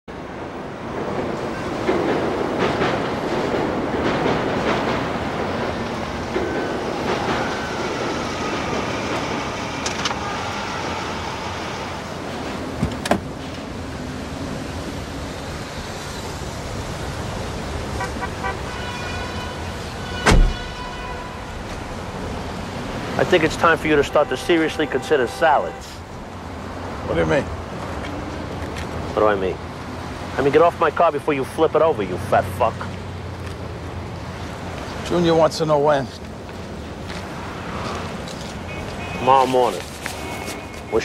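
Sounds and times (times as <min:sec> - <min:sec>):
train rumble: 0:00.1 - 0:41.0
car door shutting: 0:12.8 - 0:13.3, 0:20.2 - 0:20.7.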